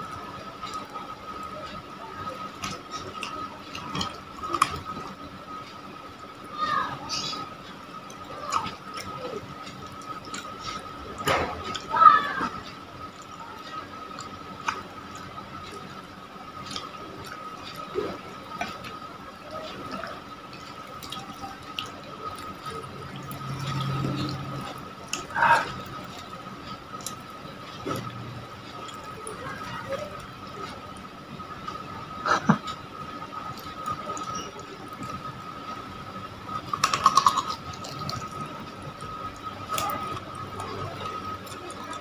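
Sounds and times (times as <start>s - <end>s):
mouth chewing: 36.7s - 38.4s.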